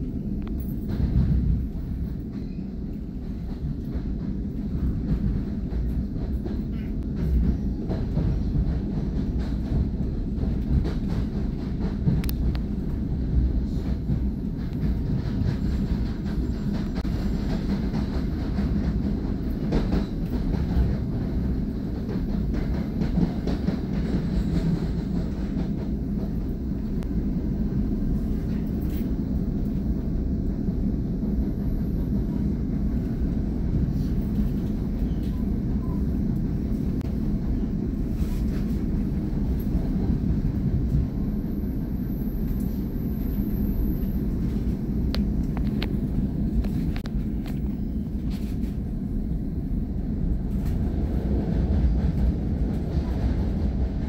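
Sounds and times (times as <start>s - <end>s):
train rumble: 0.0s - 54.0s
faint rail clicks: 10.5s - 13.0s.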